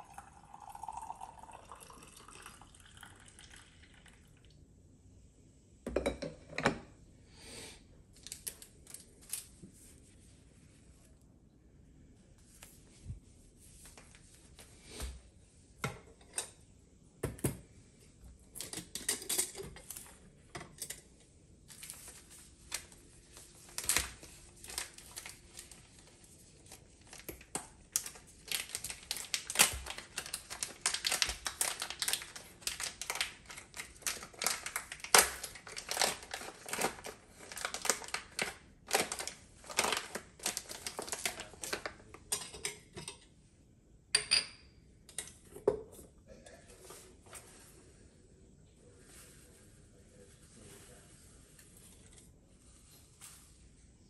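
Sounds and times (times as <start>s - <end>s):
foil bag crinkling: 21.7s - 42.1s.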